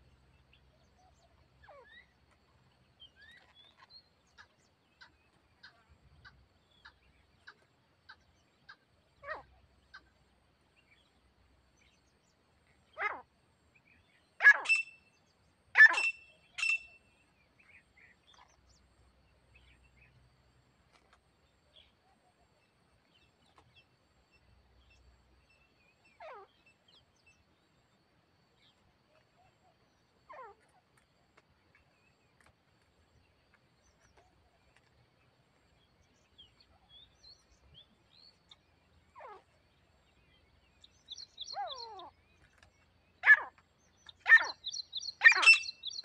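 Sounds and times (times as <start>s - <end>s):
partridge calling: 14.4s - 15.0s, 15.8s - 17.0s, 40.8s - 46.0s.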